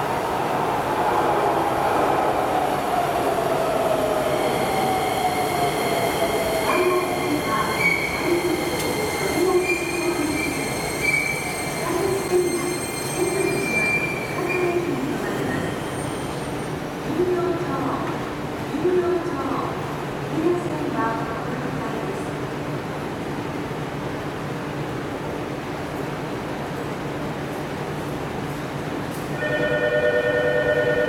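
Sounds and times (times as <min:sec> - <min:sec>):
train brakes squealing: 0:06.8 - 0:16.7.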